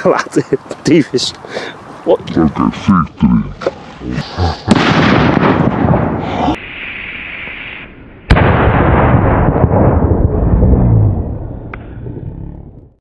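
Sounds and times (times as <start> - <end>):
firecracker bang: 4.6 - 6.5, 8.3 - 12.1
rumbling noise: 8.3 - 13.0.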